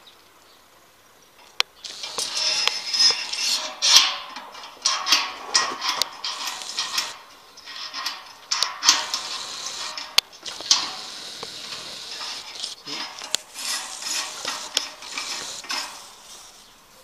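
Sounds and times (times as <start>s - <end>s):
sharp metallic clicks and knocks: 1.4s - 16.8s
rustling and scraping on metal bracket: 1.4s - 17.0s
leafy branches brushing: 1.8s - 17.0s.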